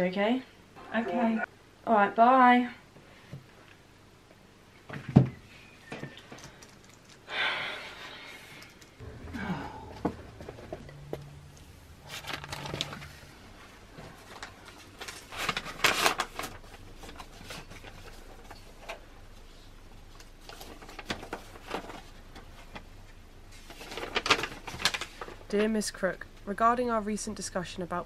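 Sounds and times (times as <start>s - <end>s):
paper rustling and crackling: 12.0s - 19.5s, 20.1s - 25.7s.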